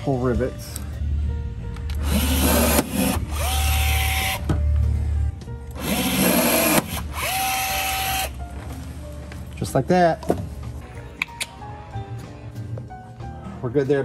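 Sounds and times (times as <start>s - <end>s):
rivet gun motor whine: 2.0s - 4.4s, 5.8s - 8.3s.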